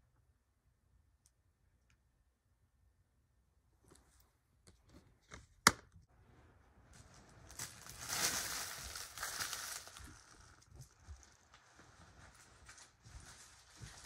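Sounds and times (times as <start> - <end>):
rustling: 6.2 - 14.0.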